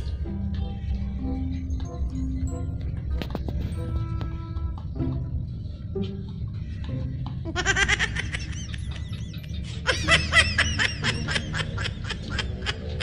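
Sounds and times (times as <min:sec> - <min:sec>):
steady low hum: 0:00.0 - 0:13.0
rapid high-pitched laughter: 0:07.4 - 0:13.0.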